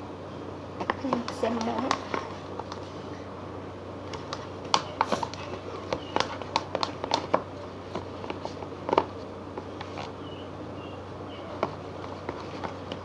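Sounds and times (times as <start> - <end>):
low steady hum: 0.0 - 13.0
stick tapping plastic cup: 4.2 - 7.5.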